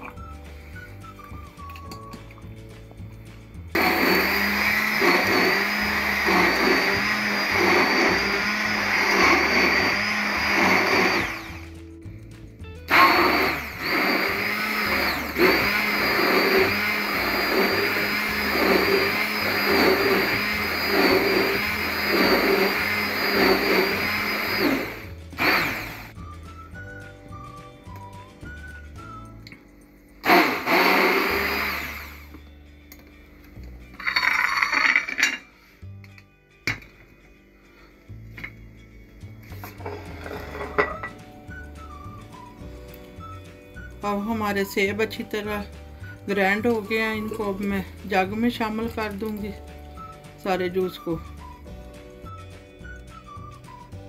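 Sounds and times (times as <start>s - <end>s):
stick blender motor churning: 3.7s - 11.8s, 12.9s - 26.2s, 30.2s - 32.4s.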